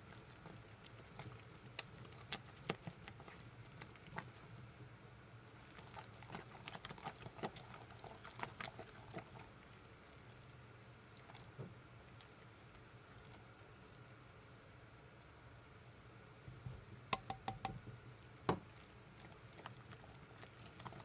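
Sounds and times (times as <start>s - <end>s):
spatula stirring thick batter: 0.0s - 14.1s, 18.4s - 21.0s
low steady hum: 0.0s - 21.0s
spatula clicking against crock: 17.2s - 17.8s.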